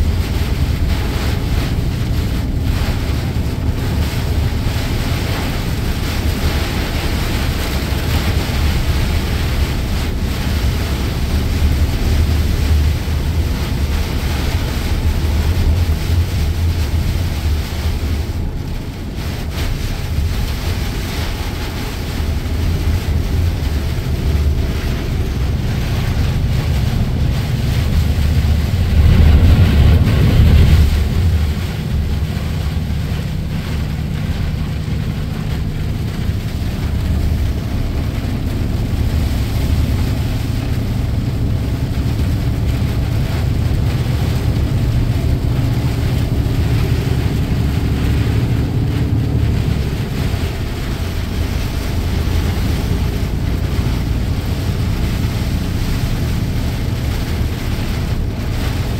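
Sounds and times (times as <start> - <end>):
engine and road drone: 0.0 - 58.9
rain on windscreen: 0.0 - 58.9
spray swoosh of passing traffic: 0.0 - 58.9
tyres hissing on wet road: 0.0 - 58.9.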